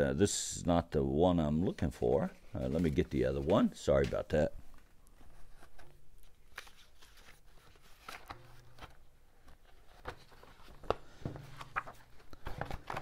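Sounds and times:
paper rustling: 1.7 - 13.0.

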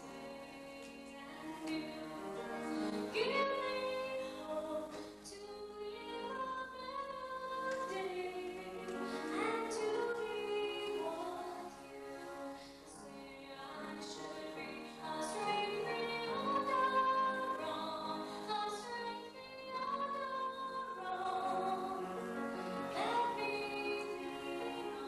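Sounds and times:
woman singing: 0.0 - 25.0.

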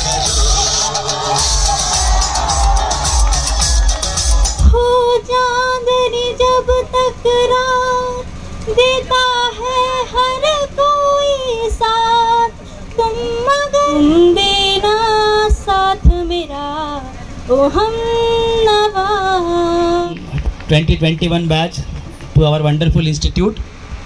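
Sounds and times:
woman singing into a microphone: 4.6 - 20.2.

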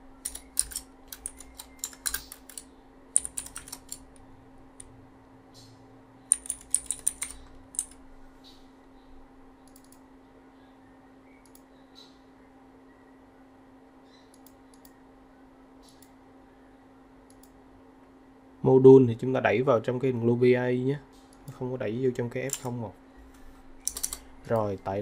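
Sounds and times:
faint steady hum: 0.0 - 25.0
computer keyboard typing: 0.2 - 4.2, 6.3 - 8.0, 9.7 - 10.0, 22.5 - 22.7, 23.8 - 24.7.

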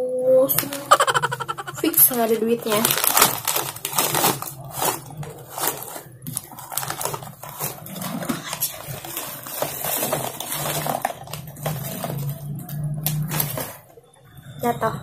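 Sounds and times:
plastic snack bag crinkling: 0.6 - 13.8
snack pieces rattling into jar: 0.7 - 12.4.

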